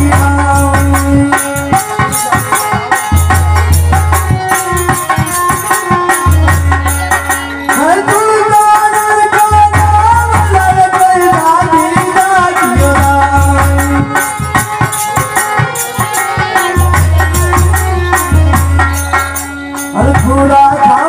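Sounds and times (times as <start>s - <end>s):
drum beat: 0.0s - 20.5s
rattling percussion: 0.0s - 21.0s.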